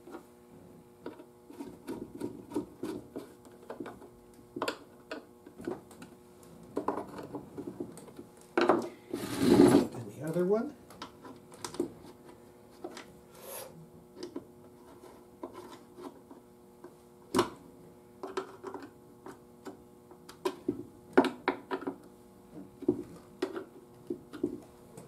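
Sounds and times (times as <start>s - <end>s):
small clicks and knocks of parts: 10.2s - 12.0s, 18.2s - 22.1s.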